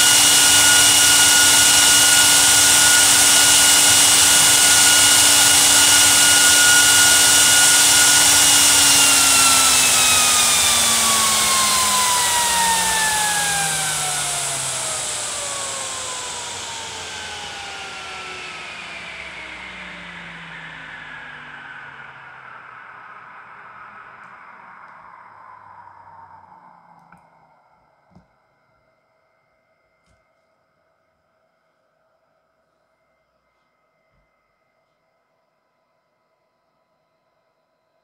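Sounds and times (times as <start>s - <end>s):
fan rush of air: 0.0s - 28.0s
fan whine: 0.0s - 32.1s.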